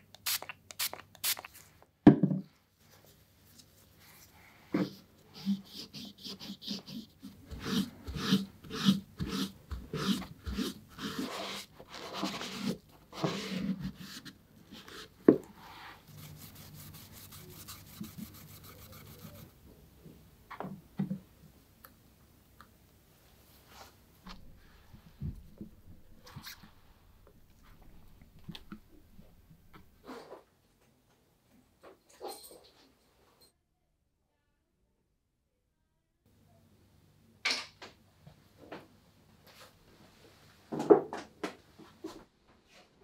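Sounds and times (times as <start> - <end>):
cloth rubbing leather shoes: 4.8 - 19.6.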